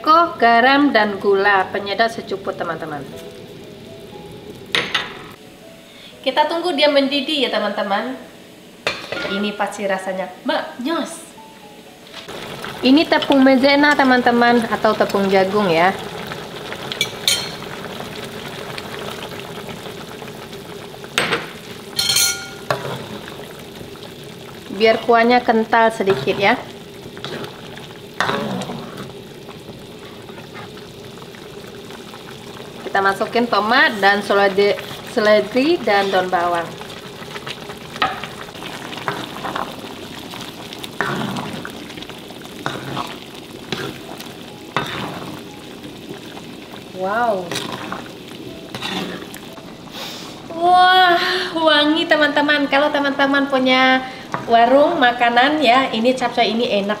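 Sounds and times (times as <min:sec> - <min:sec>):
broth bubbling in a wok: 0:12.3 - 0:57.0
utensils clinking against glass bowl: 0:17.0 - 0:17.6, 0:22.0 - 0:22.8
wooden spoon scraping a pan: 0:22.2 - 0:23.2, 0:33.9 - 0:36.5, 0:42.6 - 0:44.1, 0:44.8 - 0:45.4, 0:47.5 - 0:48.1, 0:48.7 - 0:50.2.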